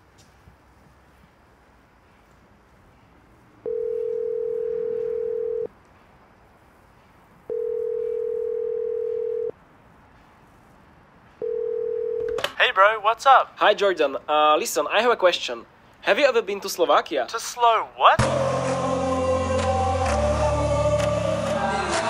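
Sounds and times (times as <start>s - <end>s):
telephone ringback tone: 3.6s - 5.7s, 7.5s - 9.5s, 11.4s - 12.4s.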